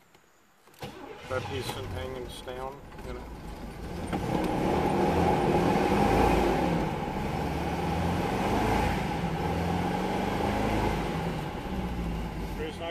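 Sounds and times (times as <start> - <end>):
car engine idling from inside cabin: 1.3 - 5.6, 11.3 - 12.9.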